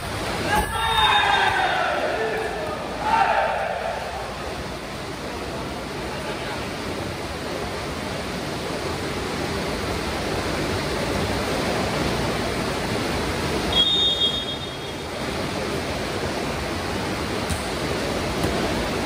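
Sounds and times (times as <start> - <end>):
rushing background noise: 0.0 - 19.0
referee's whistle blast: 13.7 - 14.9.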